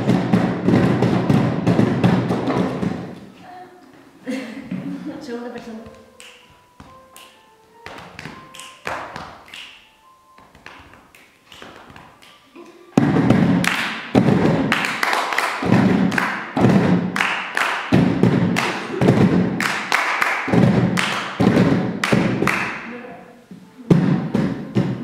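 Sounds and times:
hand drumming on plastic boxes: 0.0s - 3.2s, 13.0s - 22.8s
hand claps: 6.1s - 22.9s.

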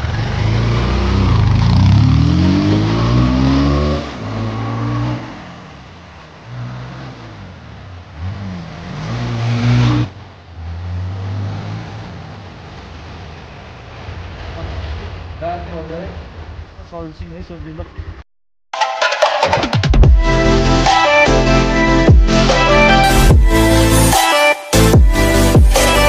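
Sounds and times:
motorcycle engine revving: 0.0s - 16.7s.

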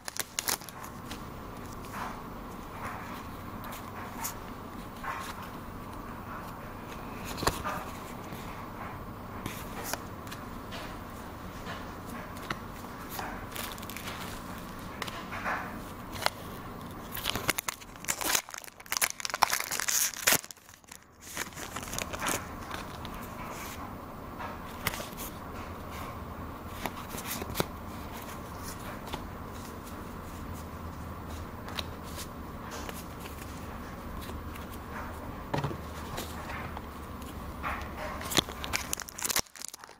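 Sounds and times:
wrapper crinkling and tearing: 0.0s - 1.2s, 13.5s - 14.4s, 16.1s - 23.0s, 38.2s - 39.9s
cards handled: 0.0s - 2.1s, 12.4s - 15.3s, 16.1s - 23.8s, 24.7s - 25.4s, 26.7s - 34.8s, 38.2s - 39.9s
steady low hum: 0.0s - 39.9s.

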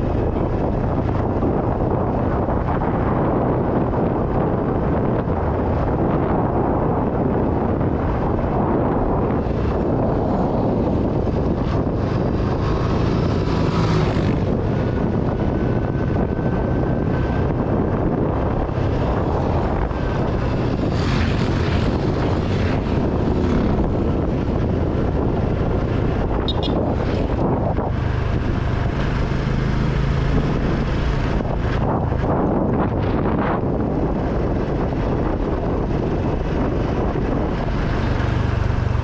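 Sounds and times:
wind rushing over microphone: 0.0s - 39.0s
motorcycle engine running: 8.6s - 39.0s.

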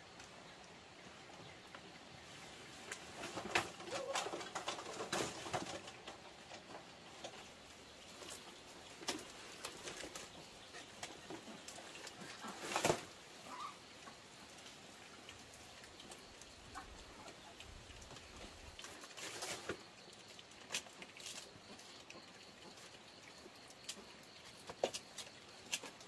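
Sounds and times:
leaves crackling and rustling: 2.2s - 20.0s
piglets chewing: 5.8s - 26.0s.

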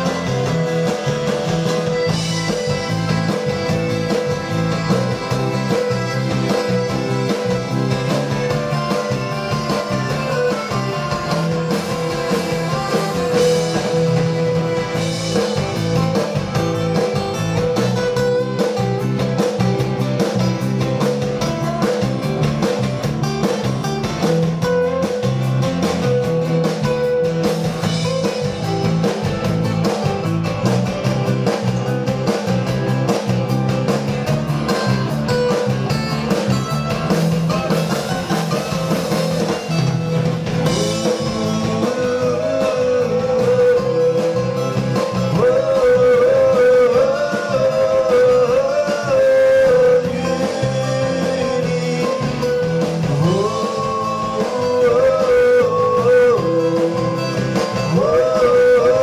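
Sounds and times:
piano accordion playing: 0.0s - 22.0s, 34.6s - 43.2s
acoustic guitars strummed: 0.0s - 59.0s.

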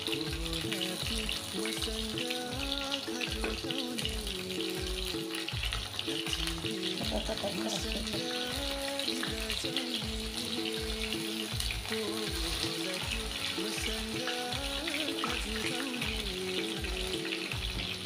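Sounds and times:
background music with a beat: 0.0s - 18.0s
oil sizzling in a pan: 0.0s - 18.0s.

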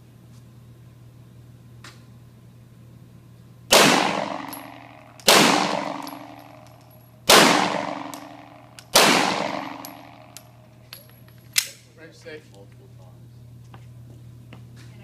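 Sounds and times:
echoing gunshots indoors: 3.7s - 6.6s, 7.2s - 10.4s.

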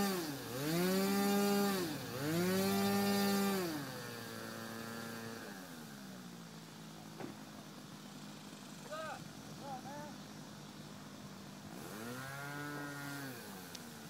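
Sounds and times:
model airplane engine revving: 0.0s - 6.4s, 11.6s - 14.0s.

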